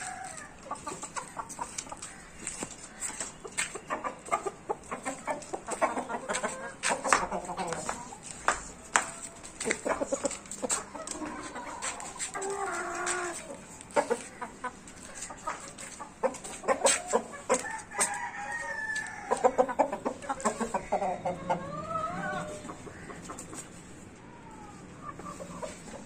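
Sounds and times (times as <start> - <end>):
roosters clucking: 0.0 - 26.0
rooster crowing: 17.6 - 19.6.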